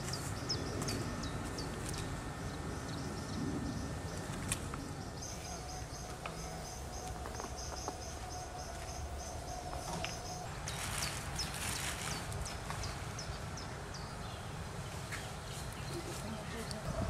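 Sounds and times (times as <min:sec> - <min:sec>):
low background rumble: 0:00.0 - 0:17.0
rustling: 0:10.6 - 0:13.0.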